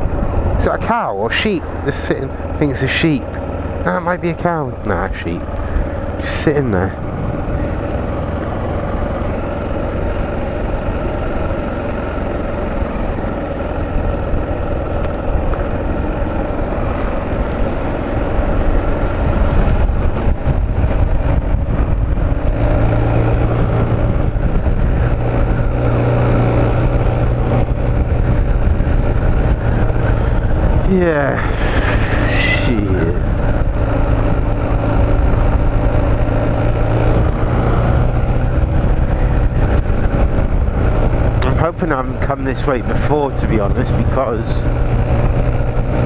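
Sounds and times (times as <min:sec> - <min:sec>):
wind rumble on microphone: 0:00.0 - 0:00.7, 0:13.8 - 0:46.0
motorcycle engine running: 0:00.0 - 0:46.0.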